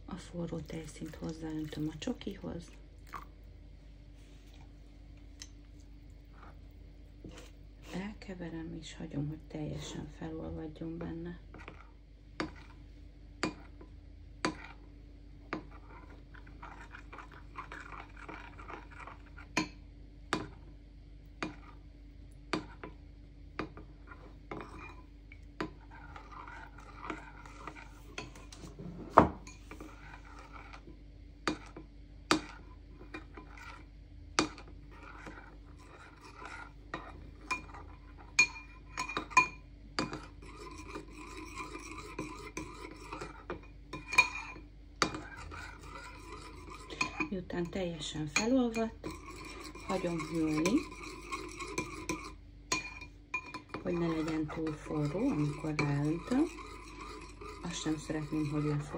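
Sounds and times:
spoon scraping bowl: 5.8 - 8.2, 10.8 - 14.9, 15.5 - 19.8, 21.4 - 21.8, 22.5 - 23.0, 23.6 - 58.9
spoon clinking against ceramic bowl: 48.3 - 58.8.

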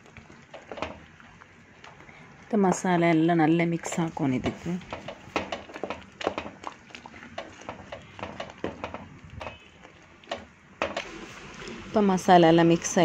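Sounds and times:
spatula scraping and knocking pan: 3.8 - 11.1.

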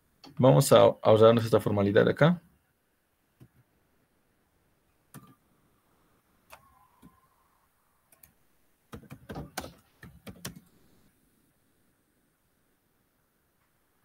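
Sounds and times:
faint keyboard typing: 5.1 - 5.4, 8.1 - 11.1.

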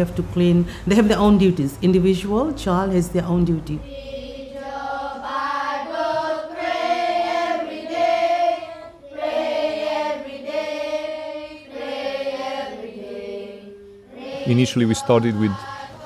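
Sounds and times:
choir singing a slow chant: 3.8 - 16.0.

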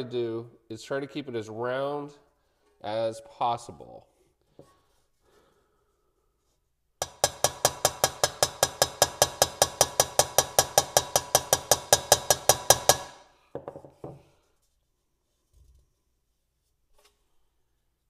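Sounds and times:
hammer tapping sheet metal: 7.0 - 13.7.

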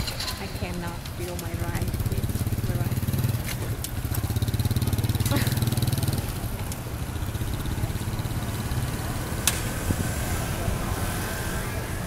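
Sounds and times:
street traffic: 0.0 - 12.0
motorbike engine running: 1.6 - 12.0.

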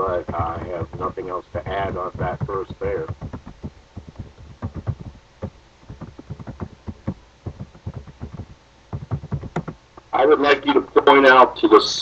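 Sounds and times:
soft clicks and taps: 0.3 - 10.1.

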